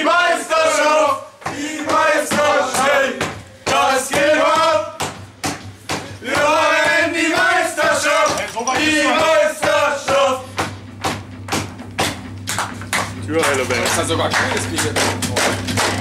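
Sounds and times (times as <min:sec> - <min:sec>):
men shouting and chanting: 0:00.0 - 0:05.1, 0:05.9 - 0:10.7.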